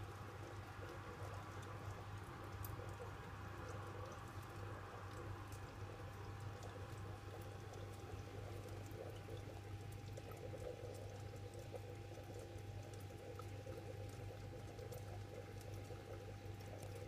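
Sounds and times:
aquarium equipment humming: 0:00.0 - 0:17.0
water bubbling and trickling: 0:00.0 - 0:17.0
small ticks: 0:00.2 - 0:17.0.

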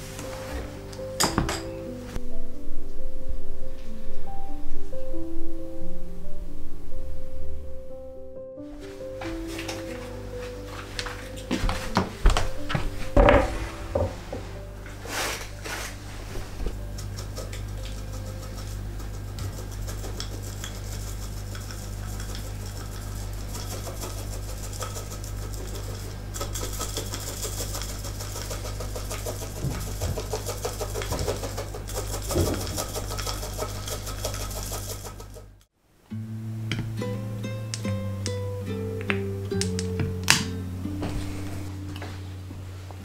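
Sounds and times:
low steady hum: 0:00.0 - 0:43.0
mesh sieve tapping and rattling: 0:17.0 - 0:35.4.

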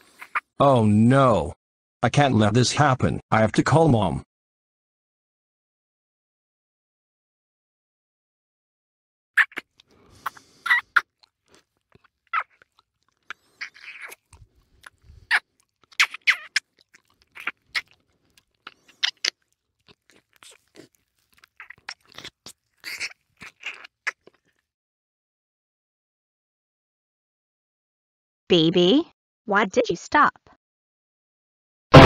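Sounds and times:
wet lip smacks: 0:09.4 - 0:24.6.

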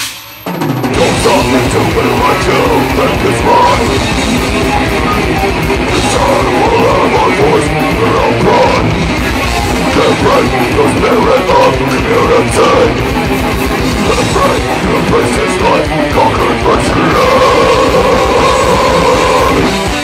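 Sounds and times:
distorted electric guitars: 0:00.0 - 0:20.0
drum kit: 0:00.0 - 0:20.0
person singing into microphone: 0:00.9 - 0:13.1, 0:13.8 - 0:19.9.

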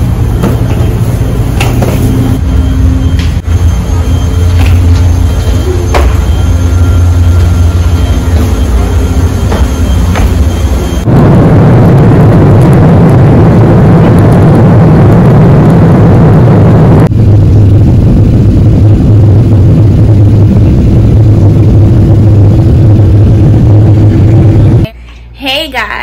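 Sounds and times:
low drone: 0:00.0 - 0:24.9
vehicle rumbling in motion: 0:00.0 - 0:24.9.

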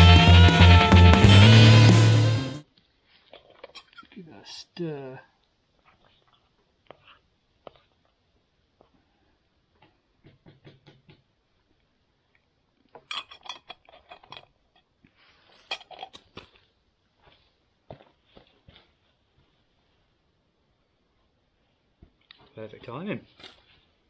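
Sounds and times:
metal pot lid lifted and set: 0:13.0 - 0:14.5
metal spoon clinking in a pot: 0:13.0 - 0:14.5.

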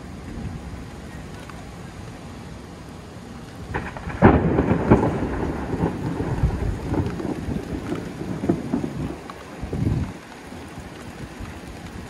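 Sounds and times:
thunder crack and rumble: 0:03.6 - 0:12.0.

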